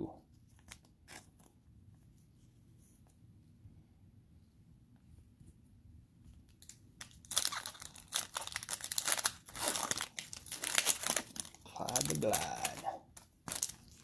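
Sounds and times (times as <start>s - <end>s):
cellophane wrapper crinkling and tearing: 6.5s - 14.0s.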